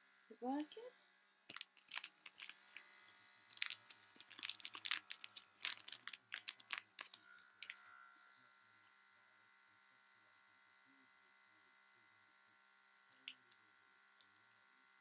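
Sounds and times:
plastic bag crinkling: 1.5s - 2.9s, 3.5s - 7.8s.

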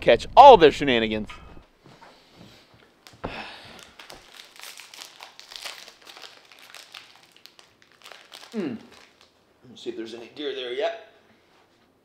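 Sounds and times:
crinkling and rustling: 1.8s - 9.4s.

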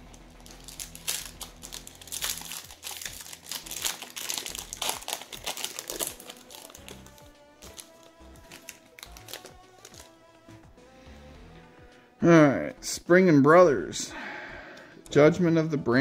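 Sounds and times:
foil wrapper crinkling: 0.4s - 10.1s.

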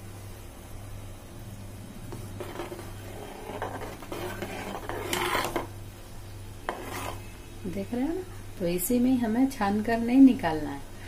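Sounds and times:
low steady hum: 0.0s - 11.0s
ladle scraping metal pot: 2.2s - 5.7s, 6.7s - 7.3s.

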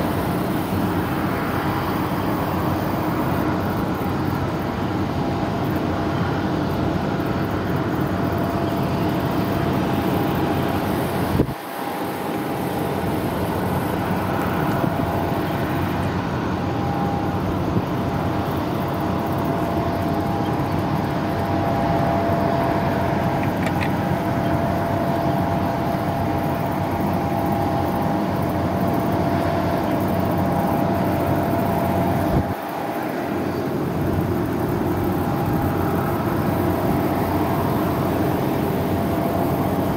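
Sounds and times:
faint engine whine: 0.0s - 39.9s
jet engines idling: 0.0s - 39.9s.

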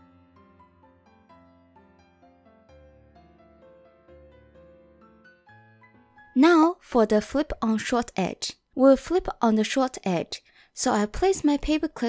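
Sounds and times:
soft piano music: 0.0s - 6.7s.

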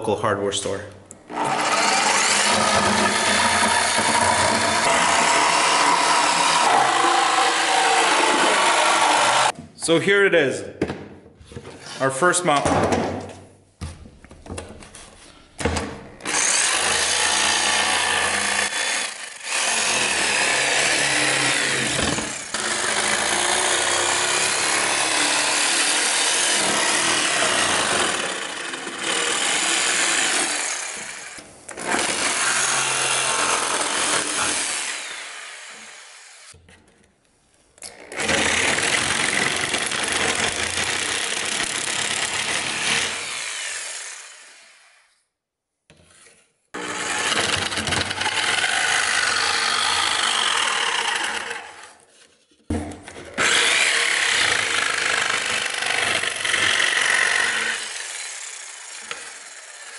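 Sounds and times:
jigsaw cutting plywood: 1.3s - 9.6s, 16.2s - 36.6s, 37.9s - 44.8s, 46.8s - 52.1s, 53.1s - 59.9s.

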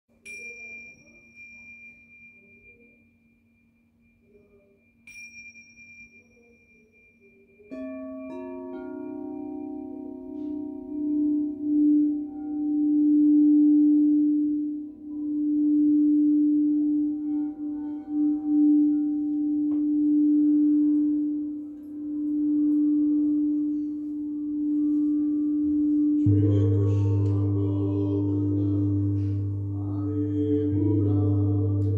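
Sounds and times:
faint low hum: 0.1s - 31.9s
metal chime ringing: 0.2s - 13.9s
singing bowl ringing: 0.2s - 31.9s.

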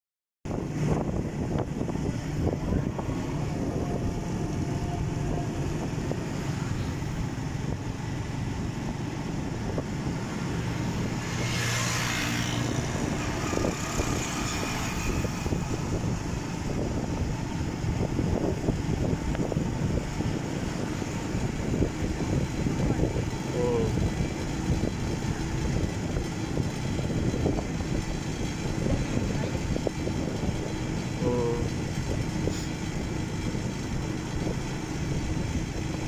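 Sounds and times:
road and wind noise: 0.4s - 36.0s
motorcycle engine running: 0.5s - 36.0s.

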